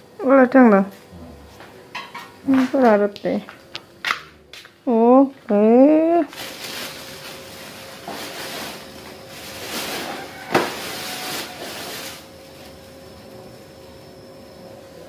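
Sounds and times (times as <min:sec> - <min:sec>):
plastic bag rustling: 0:06.1 - 0:12.9.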